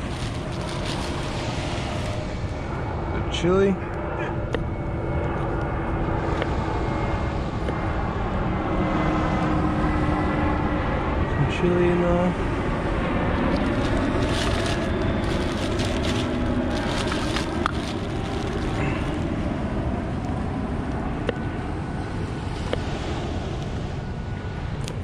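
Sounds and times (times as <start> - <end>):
plastic bags crinkling: 0.0 - 2.2, 13.4 - 19.3
wind buffeting microphone: 0.0 - 11.5, 12.2 - 25.0.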